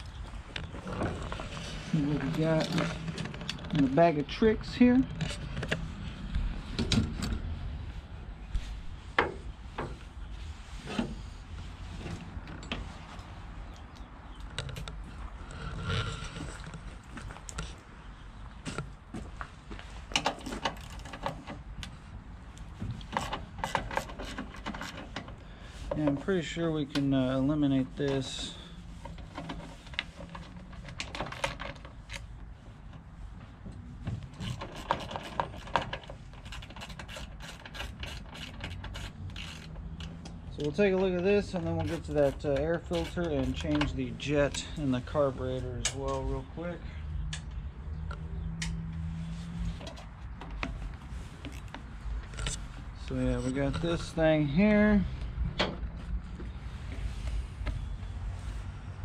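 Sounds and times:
steady low rumble: 0:00.0 - 0:20.2.

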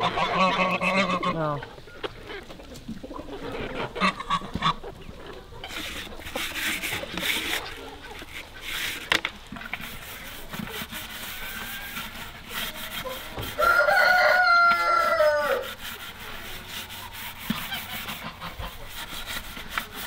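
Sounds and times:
scourer scraping plastic bucket: 0:05.5 - 0:20.0
rooster crowing: 0:13.4 - 0:15.8.

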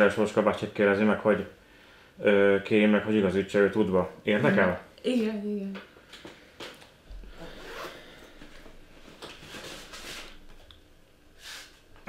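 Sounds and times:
bag rustling and scraping: 0:09.0 - 0:10.4.

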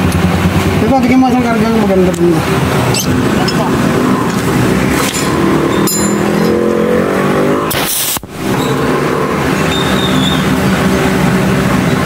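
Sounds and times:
engine-like drone: 0:00.0 - 0:12.0
compressed air hiss: 0:07.7 - 0:08.3.

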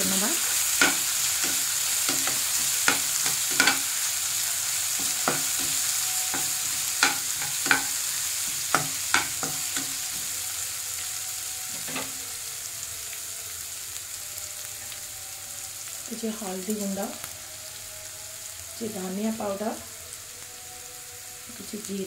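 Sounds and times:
onions sizzling in oil: 0:00.0 - 0:22.0
spoon scraping and clicking on pan: 0:00.8 - 0:04.0, 0:04.9 - 0:10.3.

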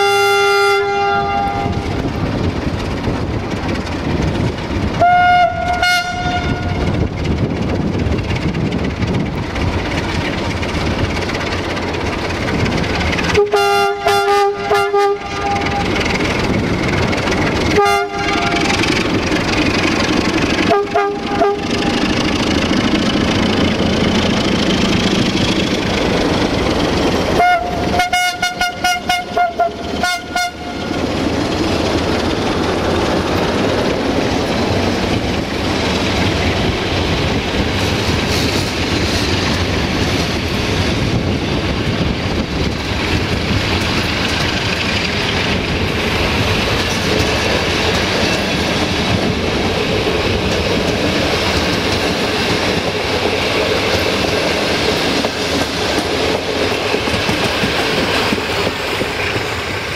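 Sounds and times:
train air horn blasts: 0:00.0 - 0:02.0, 0:05.0 - 0:06.9, 0:13.3 - 0:16.1, 0:17.7 - 0:18.9, 0:20.6 - 0:22.0, 0:27.4 - 0:31.0
train coaches rumbling past: 0:00.0 - 0:59.9
wheel clatter over rail joints: 0:01.5 - 0:28.2, 0:28.8 - 0:59.9.

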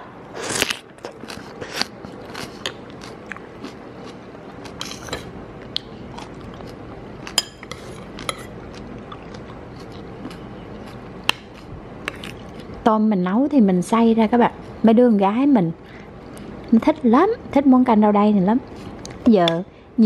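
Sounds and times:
person chewing crisp food: 0:00.4 - 0:12.8.

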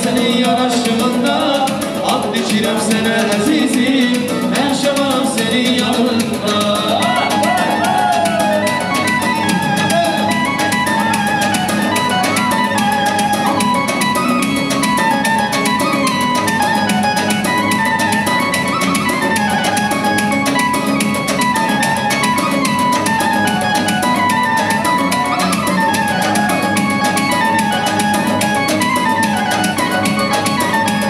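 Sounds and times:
loud dance music: 0:00.0 - 0:11.4.

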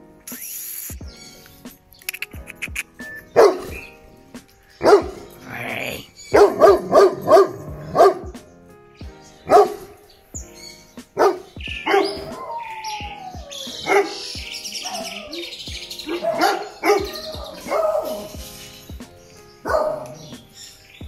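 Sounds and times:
birds chirping: 0:00.0 - 0:21.0
dog barking: 0:03.2 - 0:04.0, 0:04.8 - 0:08.4, 0:09.5 - 0:10.0, 0:11.2 - 0:18.4, 0:19.6 - 0:20.4.

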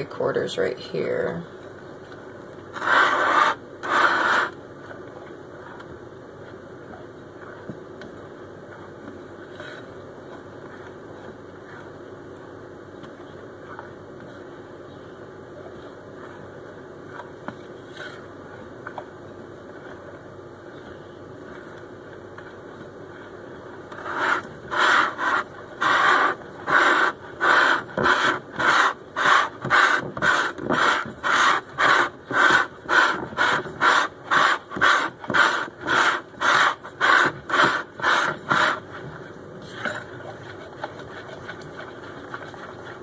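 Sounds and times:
whisk beating batter in bowl: 0:24.0 - 0:43.0.

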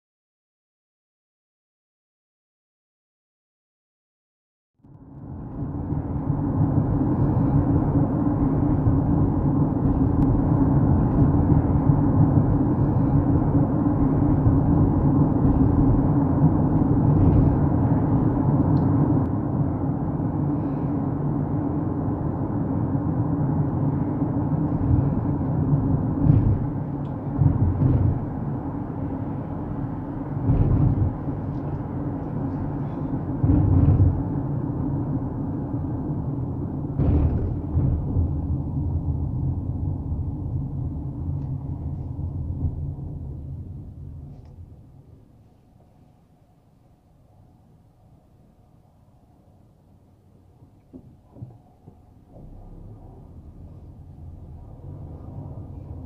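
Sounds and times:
car road rumble on wet pavement: 0:04.9 - 0:45.3, 0:50.9 - 0:56.0
heavy low thumps: 0:05.7 - 0:19.4, 0:24.6 - 0:35.3, 0:36.5 - 0:44.3.

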